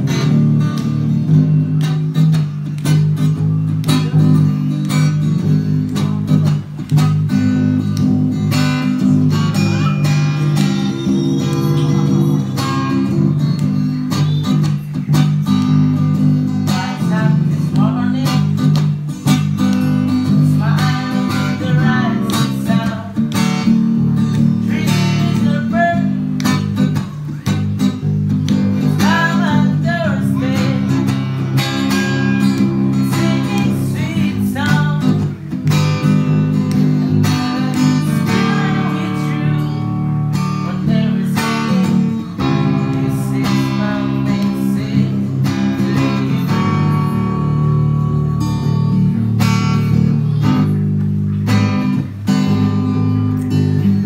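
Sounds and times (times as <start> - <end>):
acoustic guitar strummed: 0.0 - 54.0
electric bass line: 0.0 - 54.0
man singing: 9.0 - 13.1, 16.5 - 18.8, 20.2 - 23.4, 24.5 - 26.6, 28.7 - 35.5, 37.2 - 47.4.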